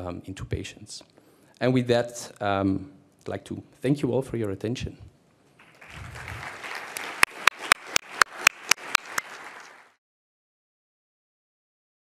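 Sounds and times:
audience applauding: 5.6s - 10.0s
sharp loud claps: 5.6s - 10.0s.

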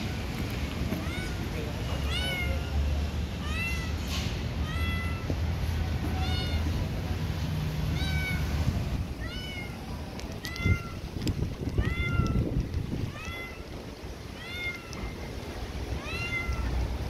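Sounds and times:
cat meowing: 0.9s - 2.8s, 3.4s - 4.0s, 4.6s - 5.4s, 6.0s - 6.8s, 7.9s - 11.0s, 11.7s - 15.2s, 15.9s - 17.0s.

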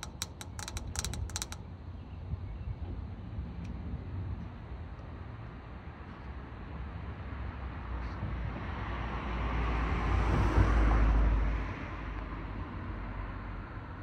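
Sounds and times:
car passing by: 8.6s - 13.4s.

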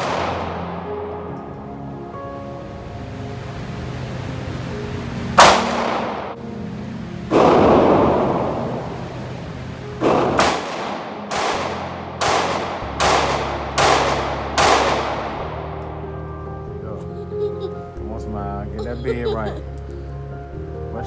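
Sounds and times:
handgun shots echoing indoors: 0.0s - 0.8s, 5.4s - 6.2s, 10.0s - 15.6s.

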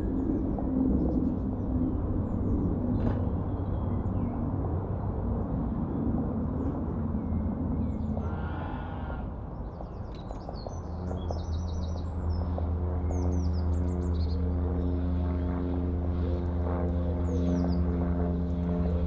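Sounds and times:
engine drone: 0.0s - 19.0s
small birds chirping: 7.8s - 15.8s, 17.0s - 18.0s.

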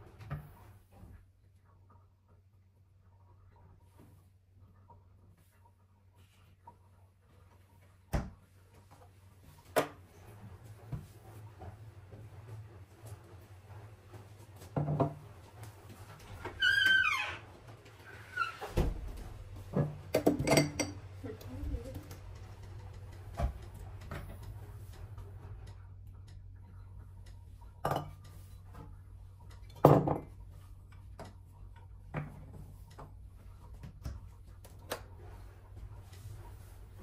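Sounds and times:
glassware knocking and clinking: 20.1s - 21.0s, 27.8s - 28.2s.

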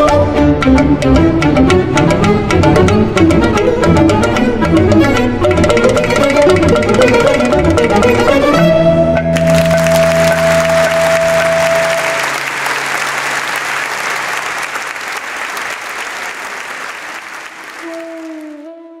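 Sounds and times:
string music held notes: 0.0s - 18.8s
audience applauding: 9.3s - 18.6s.

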